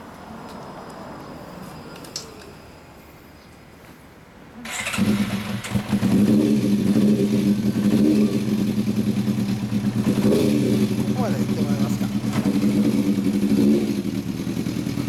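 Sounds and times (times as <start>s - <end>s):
motorcycle engine starting and idling: 4.6s - 15.0s.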